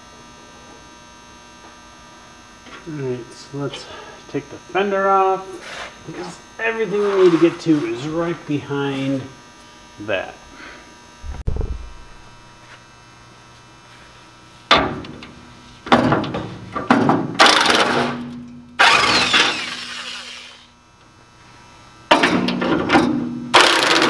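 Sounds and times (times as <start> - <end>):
low thump: 11.2 - 12.2.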